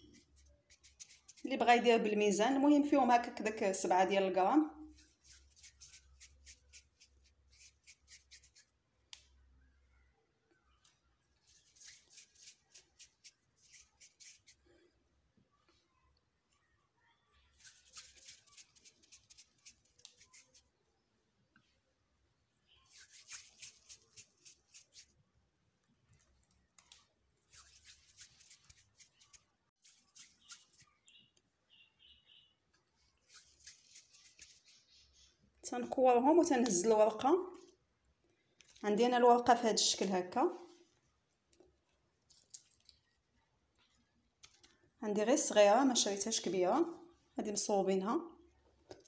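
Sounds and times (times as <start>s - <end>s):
pastry sheets rustling: 0.0s - 1.9s, 4.8s - 8.8s, 11.3s - 14.8s, 17.5s - 20.8s, 22.8s - 25.2s, 25.9s - 31.1s, 32.7s - 34.9s
hands handling pastry clicks and rustles: 25.7s - 31.5s, 41.4s - 44.9s
faint high chirps: 30.1s - 32.6s.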